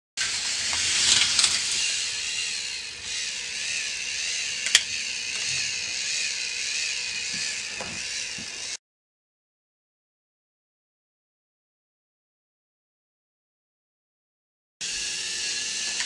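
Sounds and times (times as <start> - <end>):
small electric motor whining: 0.2 - 8.8, 14.8 - 16.0.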